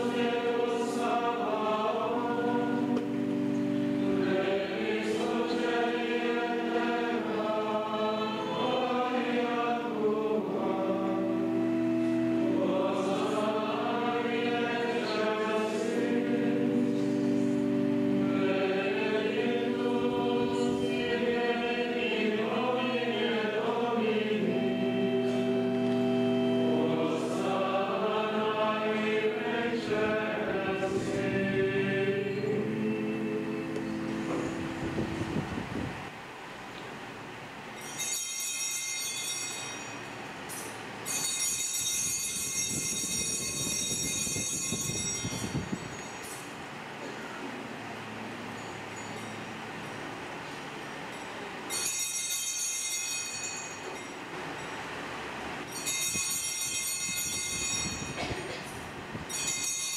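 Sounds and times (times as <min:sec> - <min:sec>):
choir singing a chant: 0:00.0 - 0:34.4.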